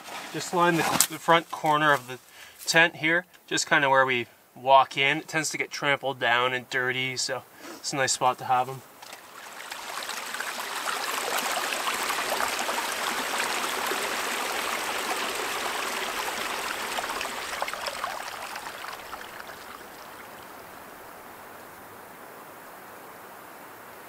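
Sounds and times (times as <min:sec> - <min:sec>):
creek trickling and splashing: 0:00.0 - 0:02.8, 0:08.0 - 0:22.3
steady hiss: 0:00.0 - 0:24.0.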